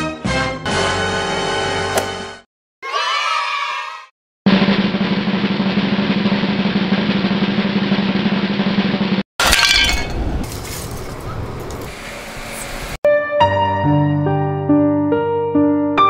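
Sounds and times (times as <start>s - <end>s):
ceramic pieces rattling: 9.4s - 10.2s
ceramic smashing on tile floor: 9.4s - 10.8s.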